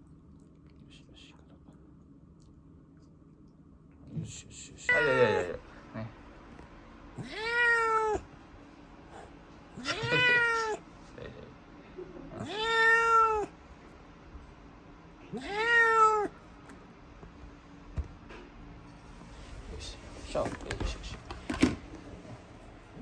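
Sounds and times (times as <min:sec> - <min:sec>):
cat meowing: 0:07.2 - 0:08.3, 0:09.8 - 0:10.8, 0:12.4 - 0:13.6, 0:15.2 - 0:16.4.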